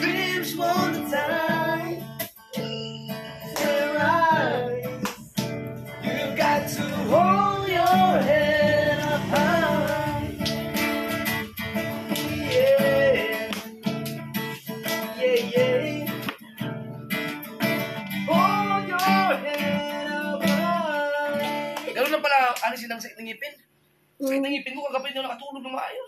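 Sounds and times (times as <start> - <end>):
man singing: 0.0 - 10.5, 11.8 - 13.8, 14.6 - 16.4, 18.3 - 22.1
acoustic guitar strumming: 0.0 - 22.1.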